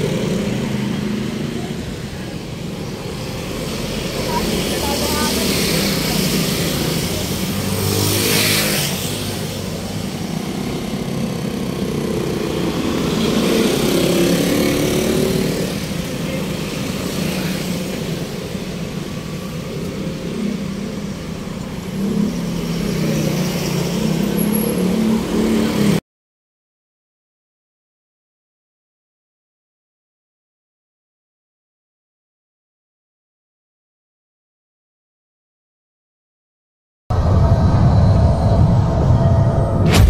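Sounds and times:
road traffic: 0:00.0 - 0:26.0.

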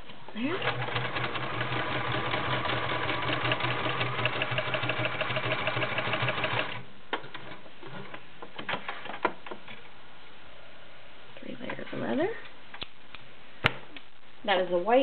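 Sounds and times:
sewing machine stitching: 0:00.5 - 0:06.8.

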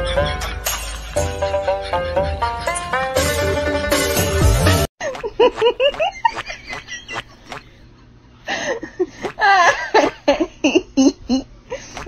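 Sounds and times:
person laughing and giggling: 0:05.0 - 0:07.8, 0:08.5 - 0:12.0.

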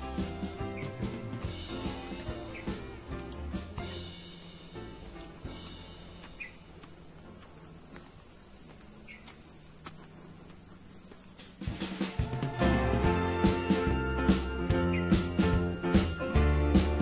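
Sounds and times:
music with jingling bells: 0:00.0 - 0:06.7, 0:11.7 - 0:17.0
insects trilling: 0:00.0 - 0:17.0.

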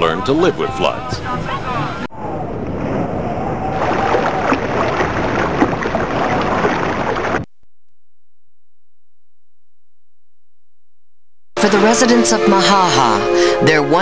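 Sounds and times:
water sloshing and splashing: 0:02.6 - 0:07.5.

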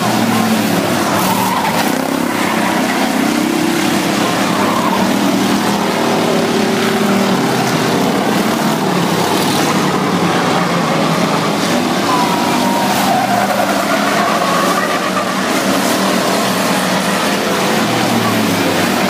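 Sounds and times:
race car engines passing: 0:00.0 - 0:19.0.

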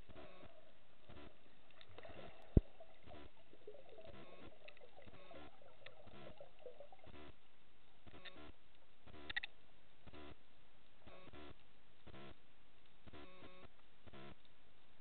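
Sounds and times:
muffled water movement: 0:00.0 - 0:11.0
faint clicks and crackles: 0:00.0 - 0:15.0.

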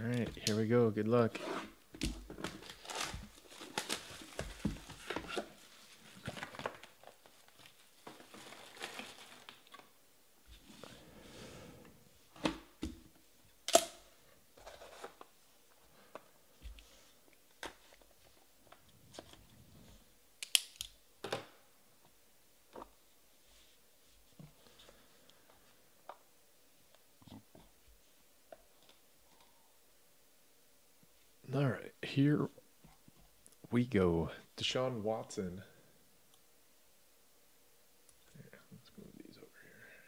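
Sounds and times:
plastic wrap tearing and crinkling: 0:02.3 - 0:09.9.

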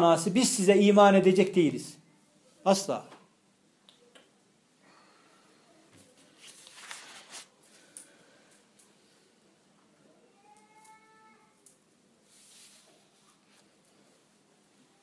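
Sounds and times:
faint rustling: 0:05.0 - 0:15.0.

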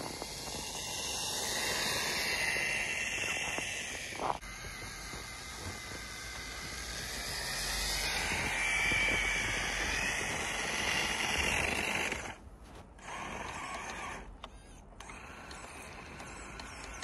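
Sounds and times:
toy car motor whining in snow: 0:00.0 - 0:17.0.

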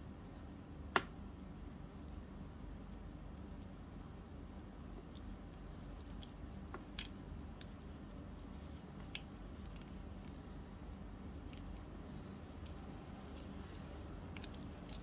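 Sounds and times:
dough squishing: 0:00.0 - 0:15.0
steady low hum: 0:00.0 - 0:15.0.

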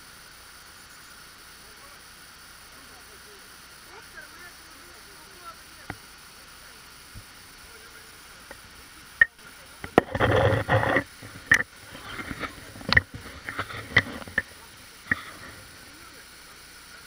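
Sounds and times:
camera handling scrape: 0:09.9 - 0:14.4.

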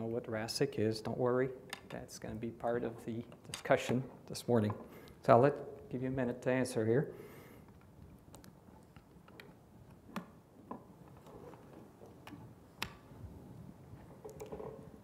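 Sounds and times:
faint clicks and ticks: 0:07.6 - 0:10.3.

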